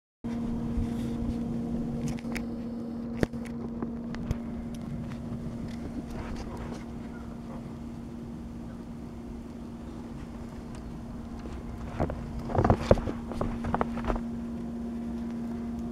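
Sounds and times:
rough low rumble: 0.3 - 15.9
steady machine hum: 0.3 - 15.9.

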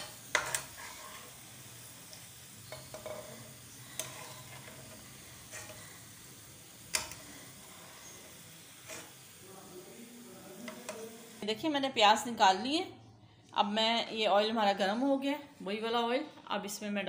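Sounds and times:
metal spoon scraping a pan: 0.0 - 6.2, 6.9 - 9.3
oil sizzling in a pan: 0.0 - 12.2.

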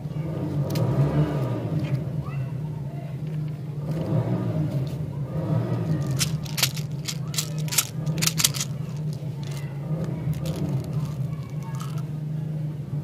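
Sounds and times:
plastic cap clicking and rattling: 6.0 - 12.0.

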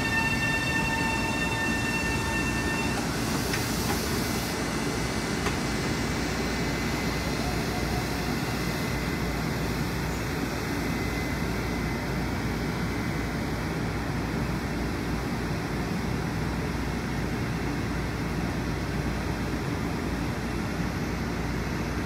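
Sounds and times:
electric train humming: 0.0 - 21.7.

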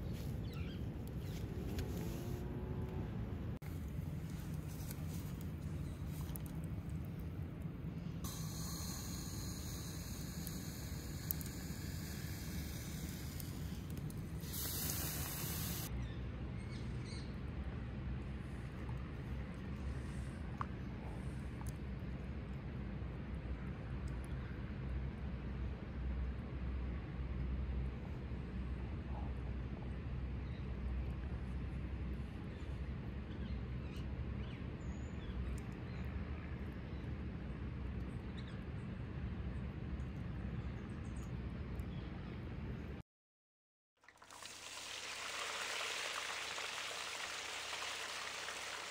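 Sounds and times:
low rumble and hiss: 0.0 - 43.0, 44.3 - 48.9
tea pouring into cup: 44.0 - 48.9.

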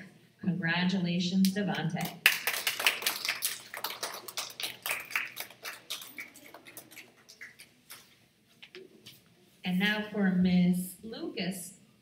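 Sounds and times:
audience applause: 2.2 - 7.6.

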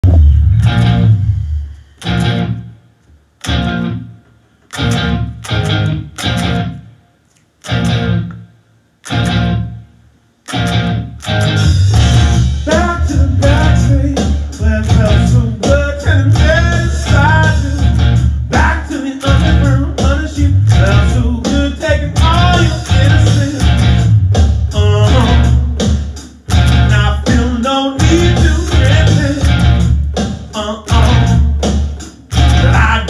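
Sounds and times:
bass guitar: 0.0 - 7.0, 7.6 - 33.0
electric guitar riff: 0.0 - 33.0.

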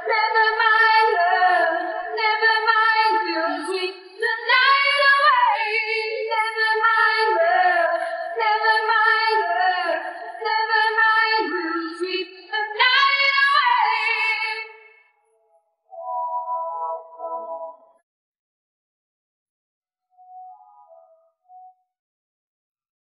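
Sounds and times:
a cappella voices singing in harmony: 0.0 - 14.8.

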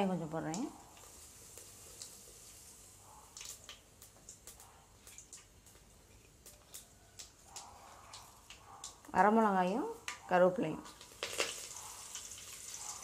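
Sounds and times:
faint hiss: 0.0 - 8.7
seeds popping in hot oil: 0.0 - 13.0.

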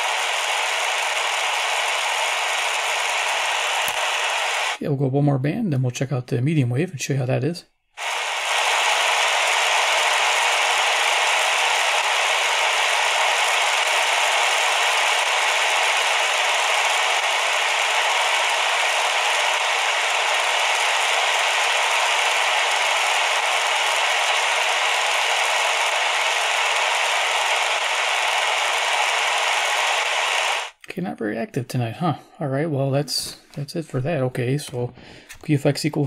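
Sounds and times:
radio static hissing: 0.0 - 4.8, 8.0 - 30.8.

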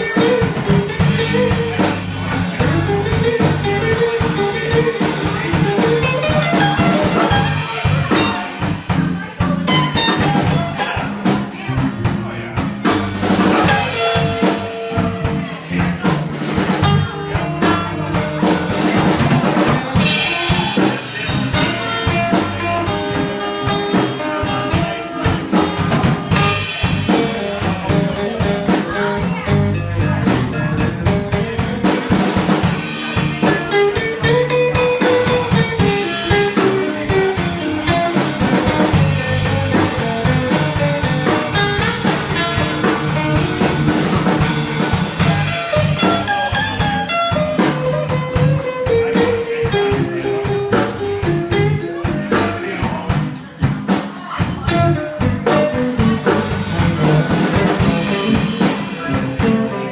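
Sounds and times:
bass guitar: 0.0 - 59.9
drum kit beat: 0.0 - 59.9
electric guitars: 0.0 - 59.9.

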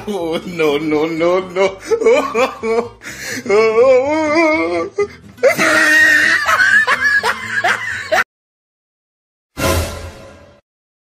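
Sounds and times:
music: 0.0 - 8.2, 9.5 - 10.6
person laughing sing-song: 0.0 - 8.2.

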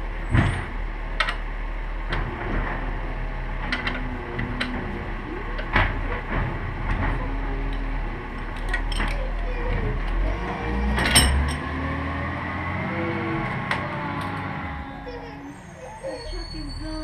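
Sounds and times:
low steady hum: 0.0 - 17.0
metal tools clinking: 8.4 - 9.4, 11.0 - 11.7
metal clank: 11.0 - 11.8.

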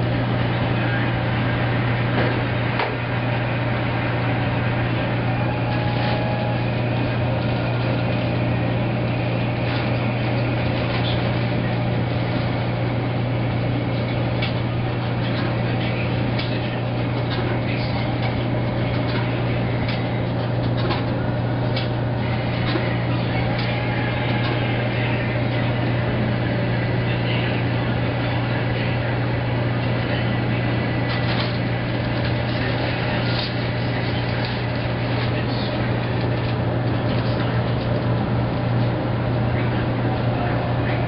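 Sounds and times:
washing machine motor hum: 0.0 - 41.0.

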